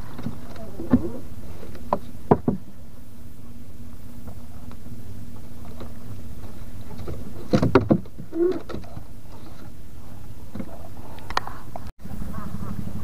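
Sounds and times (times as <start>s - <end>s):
low hum: 0.0s - 13.0s
knocks on wooden boat: 1.9s - 2.6s.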